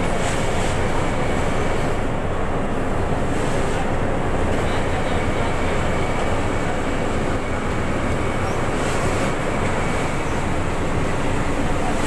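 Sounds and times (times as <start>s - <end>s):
bagging machinery noise: 2.7s - 12.0s.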